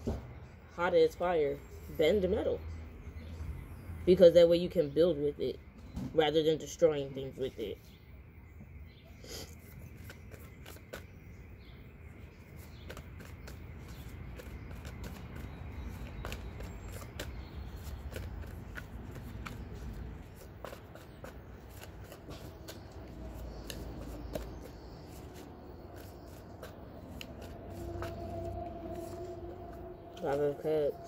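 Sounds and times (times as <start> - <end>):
cards being shuffled: 9.7 - 11.2.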